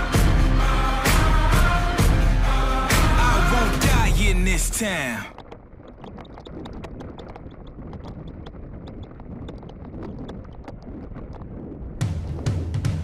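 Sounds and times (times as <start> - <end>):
music with heavy drum beat: 0.0 - 4.4
wind rumble on microphone: 5.4 - 13.0.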